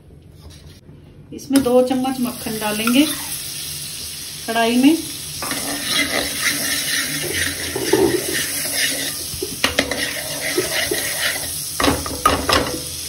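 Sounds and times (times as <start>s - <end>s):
butter sizzling in a pan: 2.1s - 13.0s
ladle stirring in a pan: 5.4s - 12.8s.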